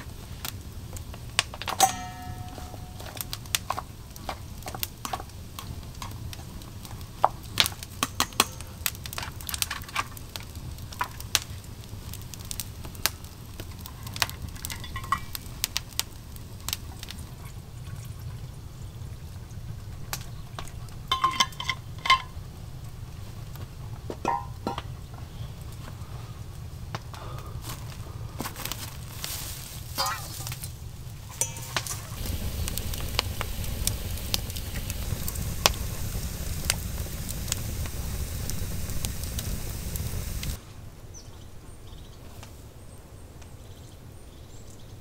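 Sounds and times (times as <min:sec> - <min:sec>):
sharp clicks and crackles: 0:00.3 - 0:17.3, 0:26.9 - 0:40.6
short ringing clinks: 0:01.8 - 0:03.3, 0:31.3 - 0:32.0
steady low hum: 0:31.2 - 0:40.6.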